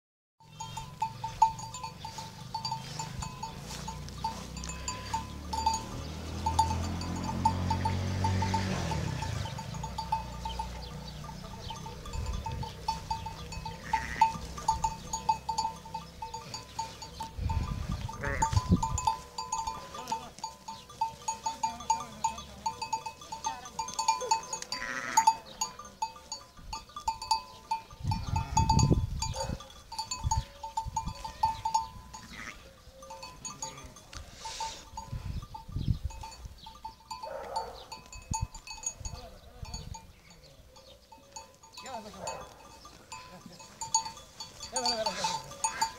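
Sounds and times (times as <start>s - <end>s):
sheep bells clinking: 0.4s - 45.9s.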